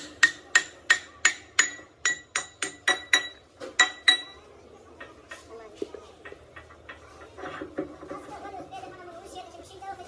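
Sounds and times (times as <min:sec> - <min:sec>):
hammer striking metal: 0:00.0 - 0:04.5.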